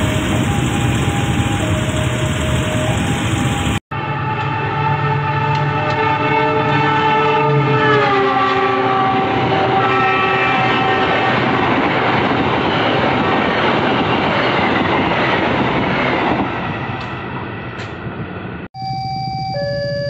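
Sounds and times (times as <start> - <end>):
diesel locomotive horn: 0.0 - 11.8.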